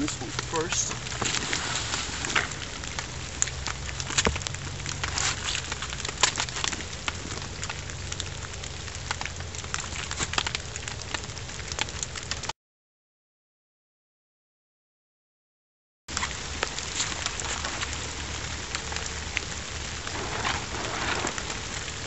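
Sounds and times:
footsteps crackling on dry leaves: 0.0s - 12.5s, 16.1s - 22.0s
blanket being handled: 20.0s - 22.0s.

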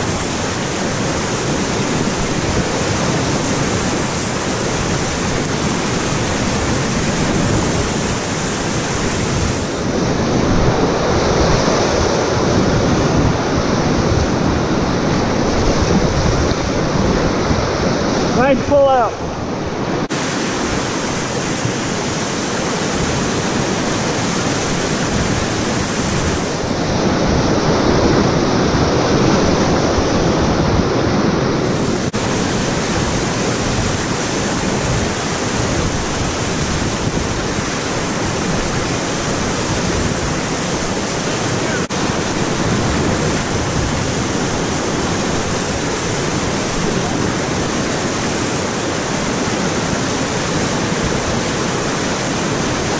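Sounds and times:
whitewater rapids rushing: 0.0s - 52.9s.

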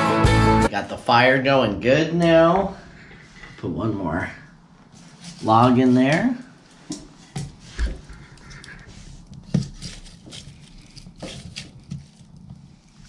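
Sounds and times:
fire crackling: 6.1s - 13.0s.

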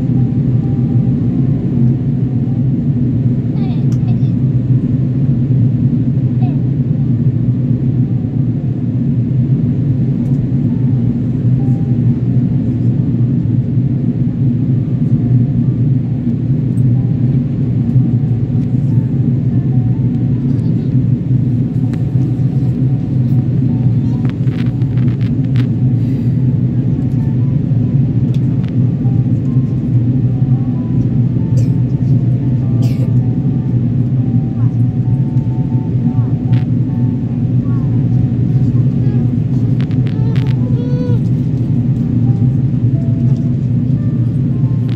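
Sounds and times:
airplane cabin rumble: 0.0s - 44.9s.

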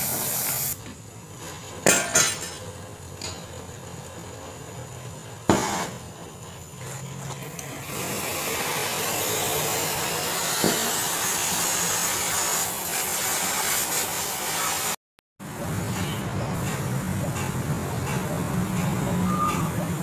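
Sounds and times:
welding torch hissing: 0.0s - 1.8s, 2.6s - 15.0s.

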